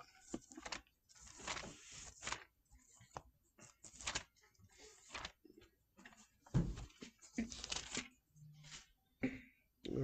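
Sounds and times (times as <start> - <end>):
thin pages rustling: 0.1 - 9.0
paper clicking against table: 0.3 - 2.5, 3.1 - 5.4.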